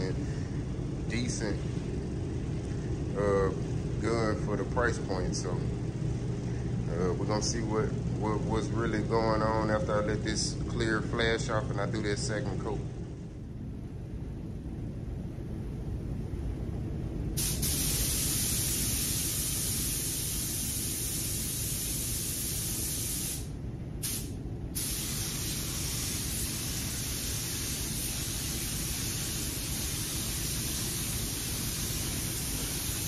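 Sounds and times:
steady low rumble: 0:00.0 - 0:20.3
paint spray gun hissing: 0:17.4 - 0:33.0.

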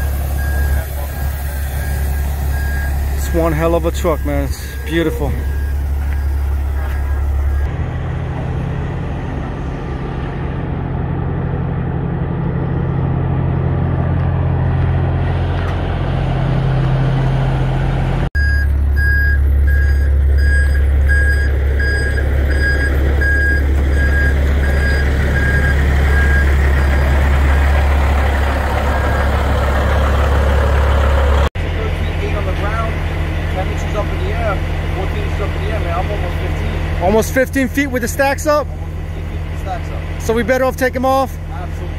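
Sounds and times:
reversing alarm beeping: 0:00.0 - 0:07.7, 0:18.4 - 0:27.8
diesel truck engine idling: 0:00.0 - 0:41.9.

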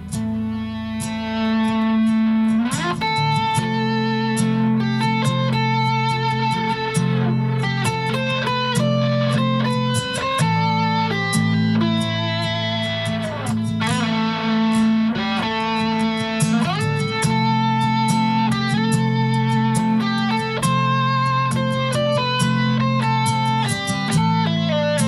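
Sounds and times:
ambient nylon-string guitar: 0:00.0 - 0:25.0.

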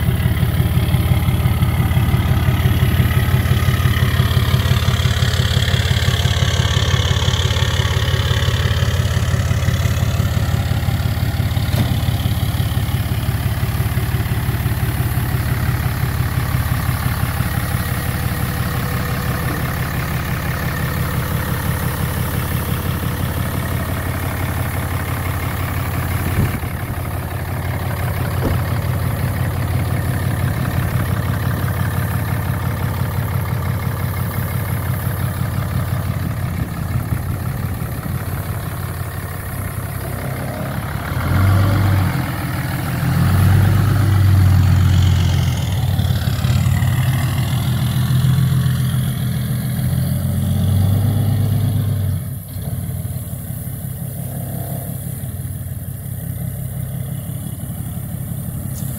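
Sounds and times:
diesel truck engine idling: 0:00.0 - 0:58.9
truck engine revving: 0:00.0 - 0:58.9.

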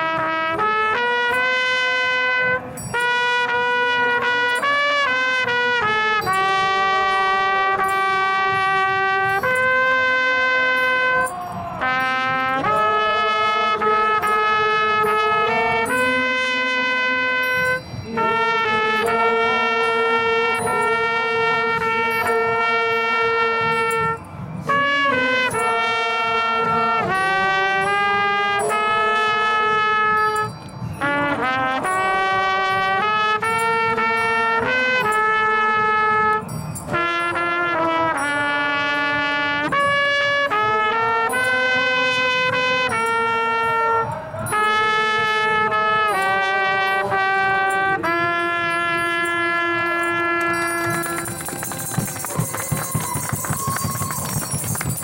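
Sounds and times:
solo trumpet slow melody: 0:00.0 - 0:55.0
people clapping: 0:49.5 - 0:55.0.

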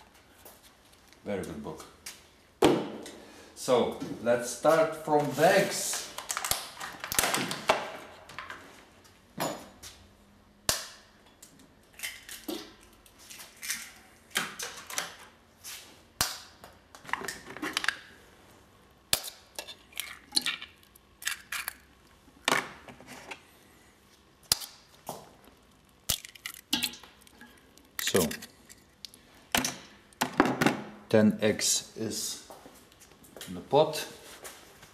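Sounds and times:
eggs cracked against metal pot: 0:19.1 - 0:22.0, 0:24.5 - 0:24.8, 0:26.0 - 0:30.3.

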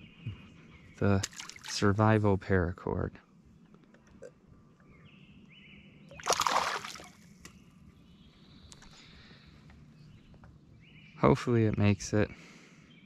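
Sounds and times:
fish splashing at water surface: 0:01.2 - 0:01.8, 0:06.2 - 0:07.2.

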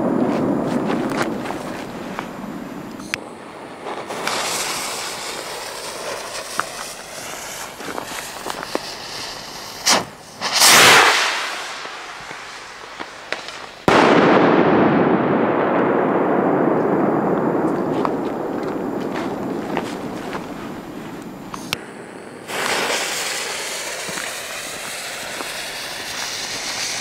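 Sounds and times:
rocket whooshing: 0:00.0 - 0:27.0
echoing rumble: 0:13.8 - 0:25.3.

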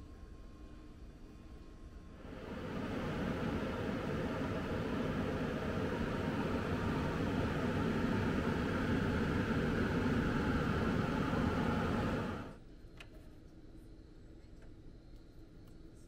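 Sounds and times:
appliance whirring: 0:02.2 - 0:12.6.

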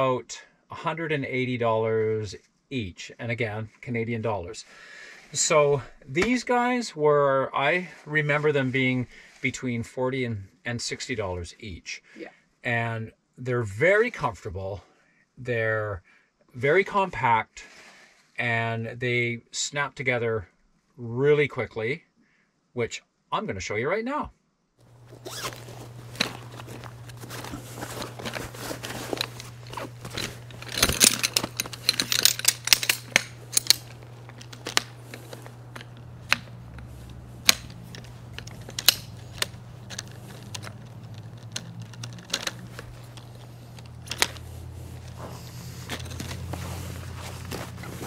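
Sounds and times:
camp chair poles clattering: 0:24.9 - 0:48.0
rattling and rustling: 0:24.9 - 0:48.0
steady low hum: 0:24.9 - 0:48.0.

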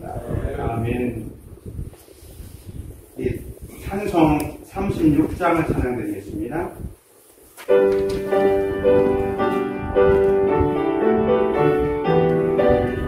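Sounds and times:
piano playing hymn chords: 0:07.7 - 0:13.0.

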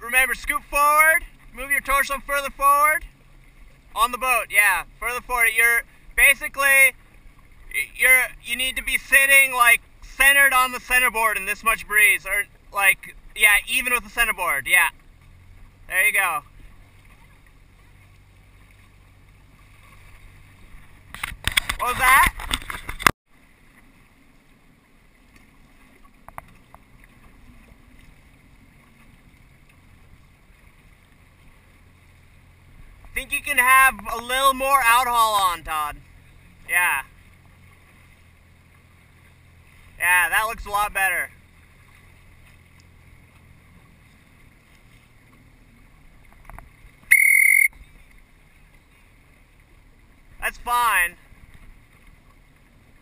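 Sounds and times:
faint wind: 0:00.0 - 0:53.0
motor boat: 0:00.0 - 0:53.0
water noise: 0:00.0 - 0:53.0
loud whistle blast: 0:47.1 - 0:47.8.

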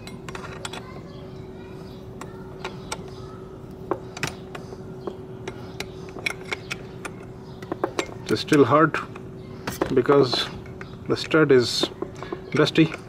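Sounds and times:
faint hum: 0:00.0 - 0:13.0.

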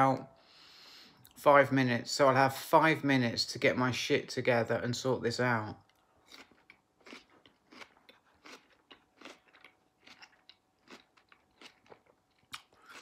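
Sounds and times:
wet crunchy chewing: 0:06.2 - 0:13.0.

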